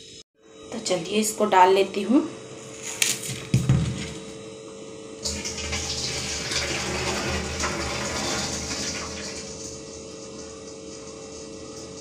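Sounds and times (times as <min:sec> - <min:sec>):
water pouring from a pot: 0:05.2 - 0:09.9.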